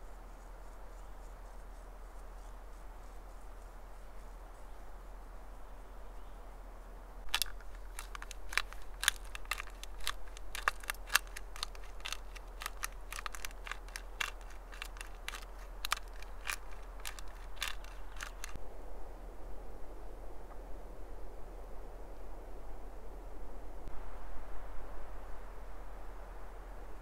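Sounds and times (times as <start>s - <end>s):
spice grinder crunching and clicking: 7.3s - 18.6s.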